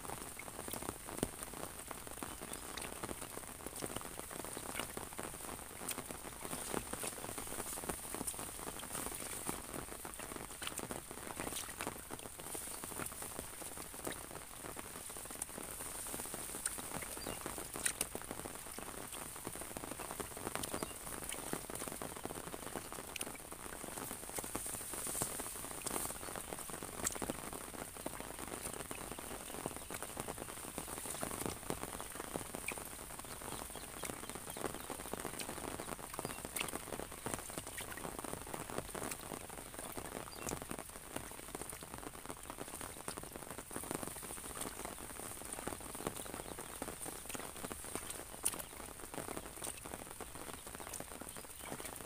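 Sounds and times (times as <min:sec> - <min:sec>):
rain hiss: 0:00.0 - 0:52.0
raindrops tapping on umbrella: 0:00.0 - 0:52.0.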